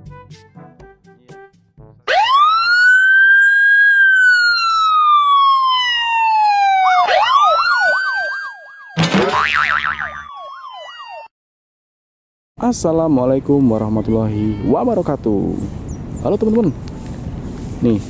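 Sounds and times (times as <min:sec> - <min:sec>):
police siren wail: 0:02.1 - 0:11.3
siren fast yelp: 0:02.1 - 0:11.3.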